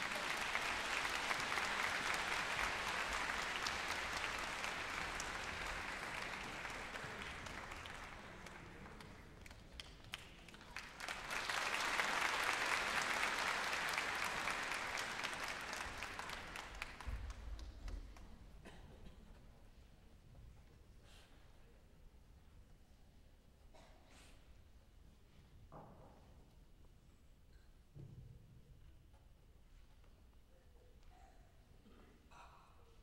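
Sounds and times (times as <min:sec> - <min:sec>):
audience applauding: 0:00.0 - 0:17.7.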